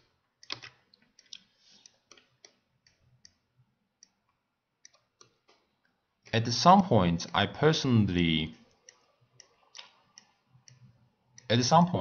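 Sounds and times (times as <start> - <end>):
computer mouse clicks: 0.4 - 6.4, 8.6 - 11.6.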